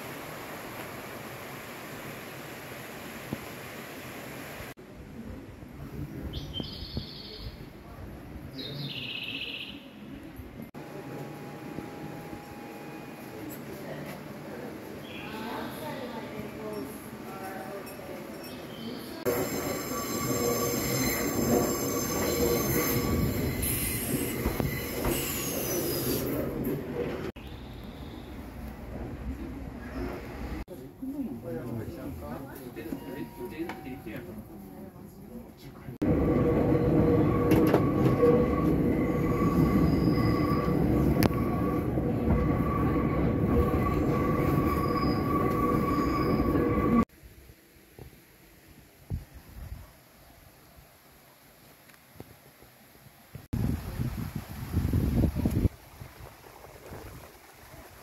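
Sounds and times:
train wheels squealing: 17.8 - 26.5, 36.1 - 47.0
train running rumble: 36.0 - 47.0.

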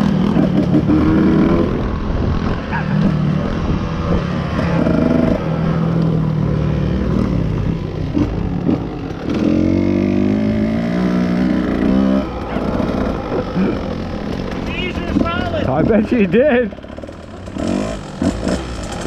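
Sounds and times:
small motorbike engine accelerating: 0.0 - 19.0.

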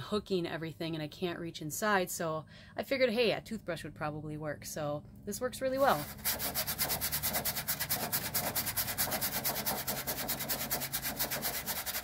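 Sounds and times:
toothbrush scrubbing mesh screen: 5.8 - 12.0.

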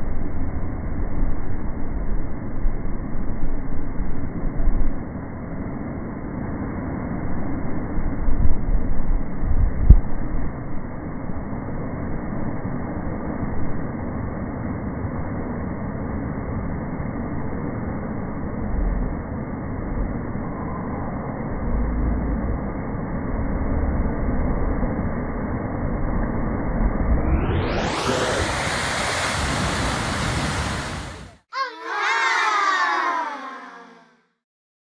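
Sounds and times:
pitched tone sliding downward: 26.7 - 28.5
surf breaking on rocks: 28.0 - 31.2.

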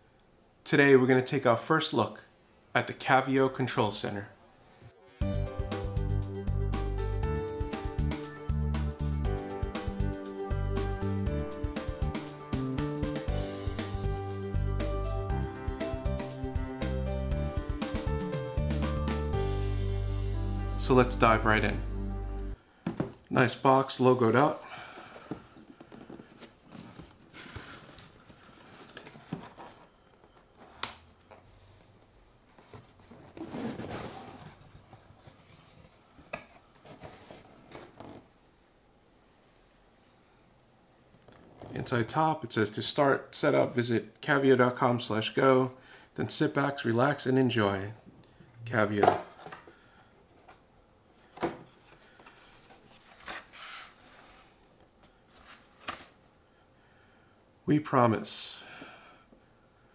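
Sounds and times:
cardboard scraping and rustling: 24.4 - 30.0, 32.5 - 38.3, 51.3 - 56.2
card scraping against cardboard: 52.3 - 54.6.

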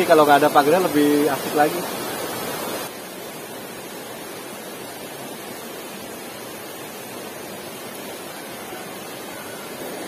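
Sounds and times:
river water rushing: 0.0 - 10.0.

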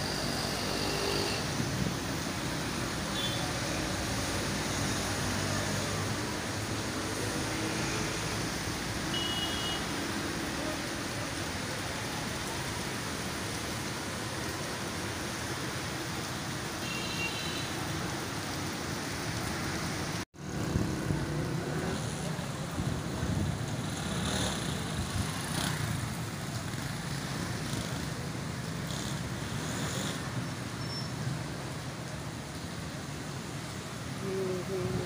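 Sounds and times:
steady rain: 0.0 - 35.0
traffic on flooded road: 0.0 - 35.0
motorcycles passing through water: 0.1 - 34.2.

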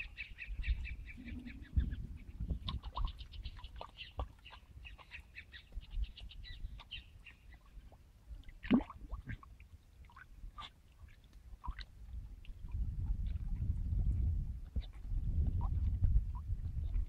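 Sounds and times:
birds chirping: 0.0 - 7.7.

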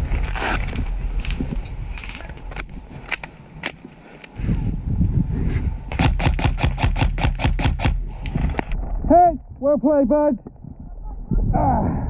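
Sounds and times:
airsoft gun shots: 5.9 - 8.0.

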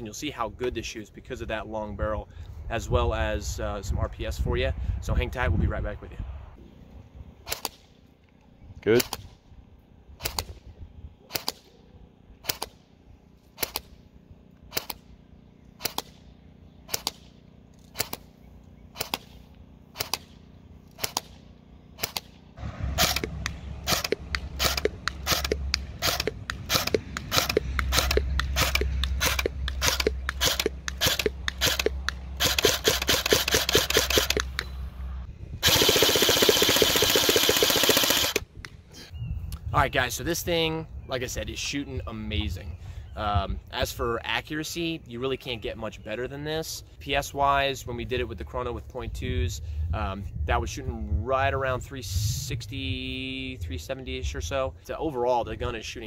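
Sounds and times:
airsoft rifle firing: 7.4 - 7.9, 11.3 - 11.7, 13.5 - 14.0, 14.7 - 15.2, 15.8 - 34.6, 35.6 - 38.4.

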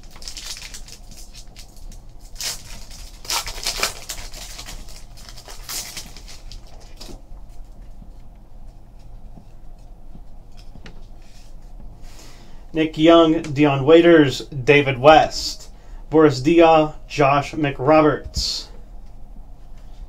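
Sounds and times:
foil wrapper crinkling: 0.0 - 7.9.

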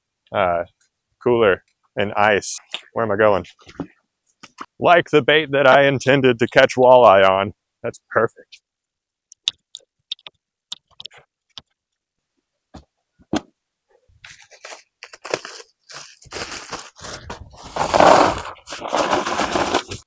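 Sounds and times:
plastic bag of ice crinkling: 14.2 - 20.0.

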